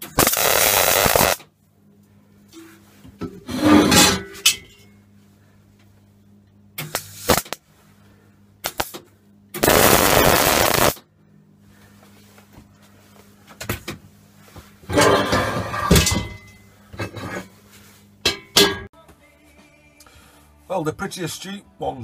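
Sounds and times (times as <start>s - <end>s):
welding arc crackling: 0.0s - 1.5s, 6.8s - 7.6s, 8.6s - 9.0s, 9.6s - 11.0s
steady low hum: 0.0s - 18.9s.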